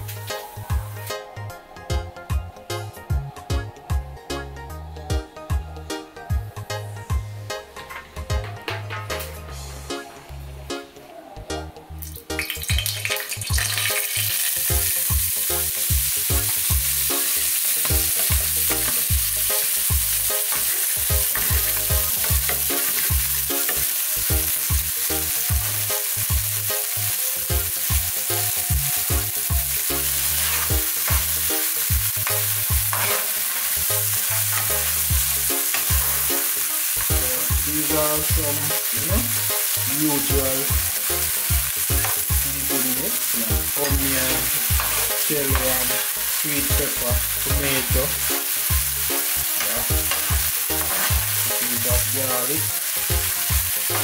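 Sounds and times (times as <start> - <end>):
vegetables sizzling in oil: 0.0 - 1.2, 12.0 - 54.0
metal spatula stirring: 16.4 - 24.0, 29.8 - 37.9, 38.6 - 54.0.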